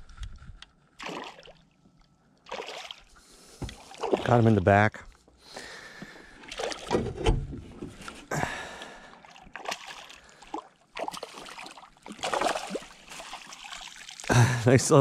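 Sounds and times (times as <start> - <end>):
fish thrashing and splashing: 1.0 - 1.7, 2.5 - 3.1, 3.7 - 4.4, 6.2 - 7.0, 8.0 - 14.3.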